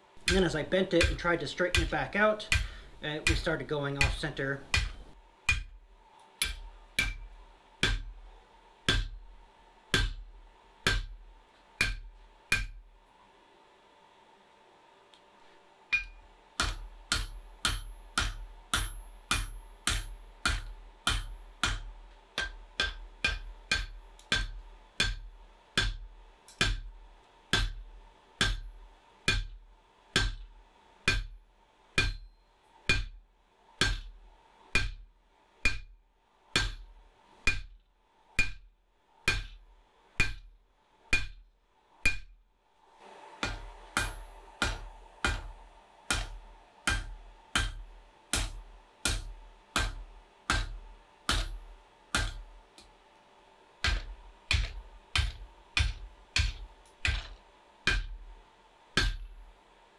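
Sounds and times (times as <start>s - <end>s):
hammer striking hot steel: 0.2s - 5.8s, 6.4s - 8.2s, 8.9s - 9.3s, 9.9s - 11.2s, 11.8s - 12.8s, 15.9s - 31.4s, 32.0s - 33.2s, 33.8s - 35.0s, 35.6s - 35.9s, 36.5s - 37.8s, 38.4s - 38.6s, 39.2s - 39.6s, 40.2s - 40.5s, 41.1s - 41.4s, 42.0s - 42.3s, 43.4s - 52.6s, 53.8s - 58.3s, 59.0s - 59.3s.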